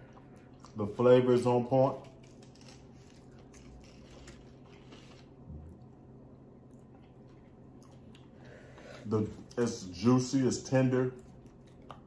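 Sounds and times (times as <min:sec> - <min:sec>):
faint chewing: 0:00.0 - 0:00.8, 0:01.9 - 0:10.0, 0:11.0 - 0:12.0.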